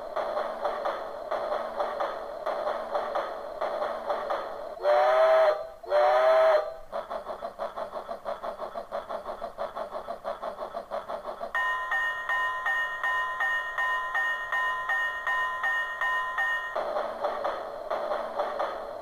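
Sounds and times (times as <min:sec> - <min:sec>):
electronic locomotive chuffing: 0:00.0 - 0:19.0
steam whistle blasts: 0:04.8 - 0:06.8.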